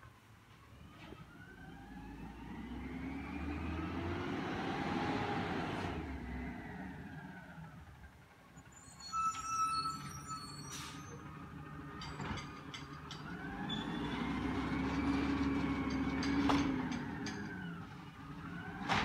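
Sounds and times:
diesel truck engine revving: 0:01.4 - 0:08.0, 0:13.3 - 0:19.0
light metal clanks: 0:11.9 - 0:13.5, 0:15.5 - 0:17.8.

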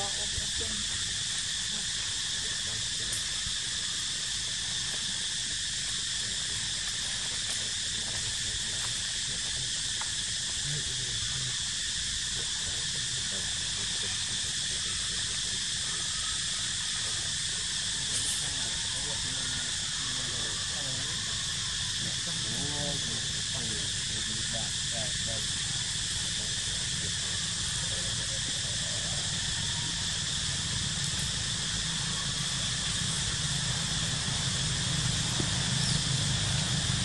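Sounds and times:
insects buzzing: 0:00.0 - 0:37.0.

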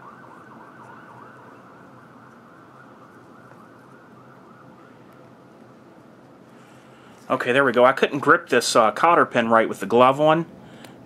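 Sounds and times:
siren wailing: 0:00.0 - 0:05.5.

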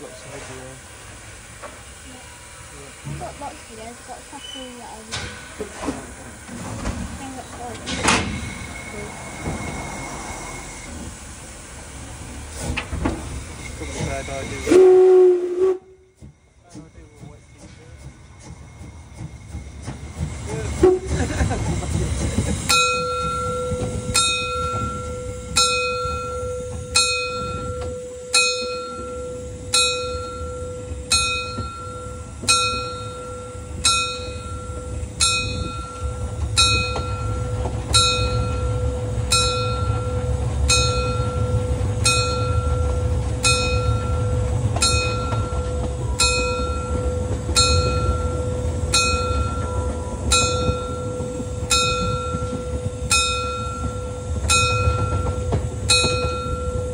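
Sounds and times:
large bell ringing: 0:22.6 - 0:56.9.

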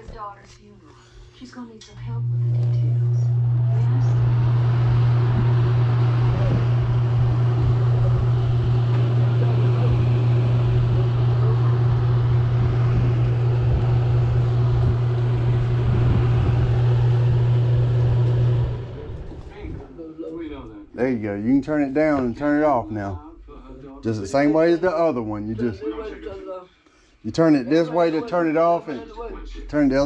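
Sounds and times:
heater fan humming: 0:00.0 - 0:30.0
air rushing through grille: 0:02.2 - 0:19.9.

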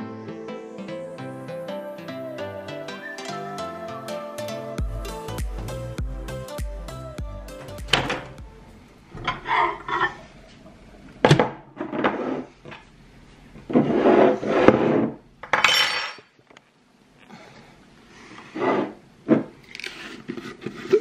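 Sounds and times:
dishes and utensils clattering: 0:09.2 - 0:10.3, 0:15.4 - 0:16.3.

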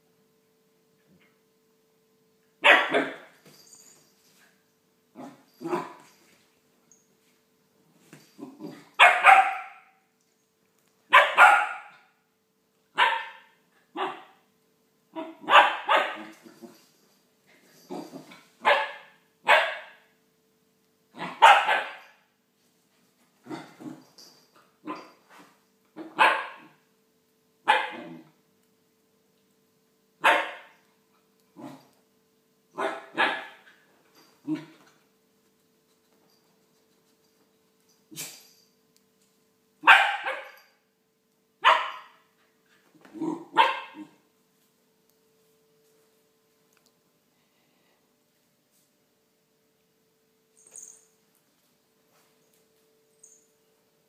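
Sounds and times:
dog barking: 0:02.6 - 0:03.3, 0:09.0 - 0:10.0, 0:11.1 - 0:12.1, 0:13.0 - 0:14.4, 0:15.2 - 0:16.3, 0:18.6 - 0:20.0, 0:21.2 - 0:22.2, 0:26.2 - 0:26.8, 0:27.7 - 0:28.2, 0:30.2 - 0:30.8, 0:32.8 - 0:33.6, 0:39.8 - 0:40.6, 0:41.6 - 0:42.2, 0:43.5 - 0:44.1.

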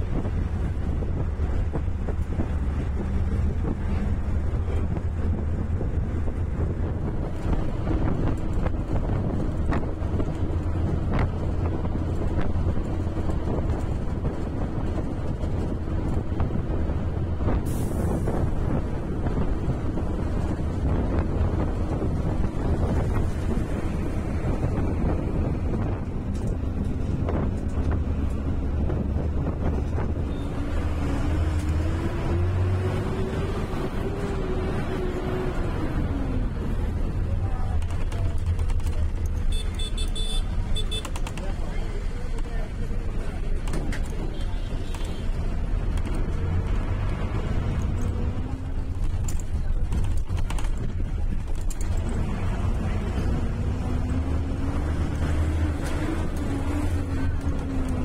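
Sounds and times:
bus engine rumble: 0:00.0 - 0:58.0
road noise: 0:00.0 - 0:58.0.

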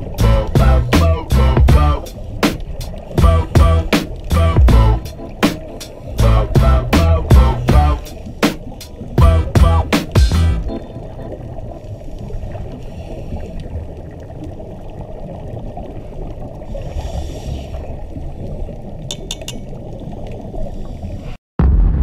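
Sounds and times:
bubbling hiss: 0:00.0 - 0:09.2, 0:11.6 - 0:21.4
regulator bubbles: 0:00.0 - 0:16.8, 0:17.9 - 0:20.7
muffled underwater rush: 0:00.0 - 0:22.0
loud low boom: 0:00.2 - 0:02.0, 0:03.2 - 0:05.0, 0:06.2 - 0:08.0, 0:09.2 - 0:10.7, 0:21.6 - 0:22.0.

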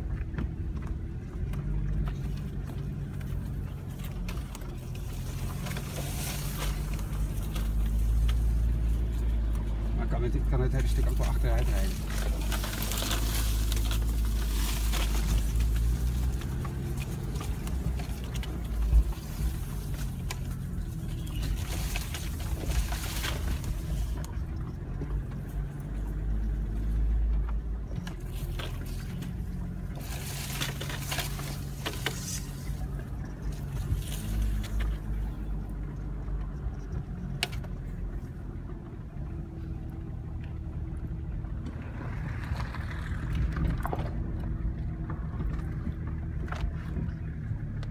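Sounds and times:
branches scraping along car: 0:00.0 - 0:47.9
car engine running: 0:00.0 - 0:47.9.

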